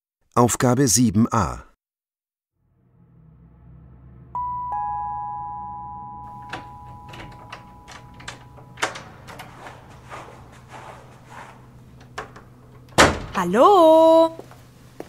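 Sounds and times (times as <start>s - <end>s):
two-tone doorbell chime: 4.4s - 11.2s
knocks and clicks: 6.4s - 13.4s.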